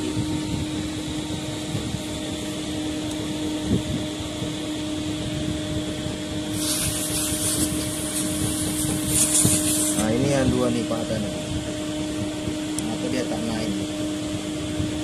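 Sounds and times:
machine hum: 0.0s - 15.0s
aerosol spray hissing: 6.5s - 10.1s.

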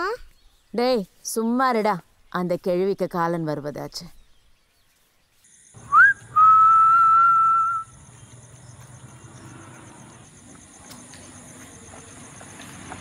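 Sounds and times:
man whistling: 5.8s - 7.9s.

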